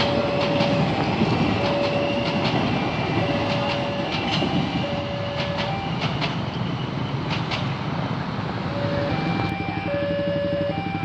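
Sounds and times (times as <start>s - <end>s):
train wheels clicking over rail joints: 0.0s - 8.2s
train rolling rumble: 0.0s - 11.0s.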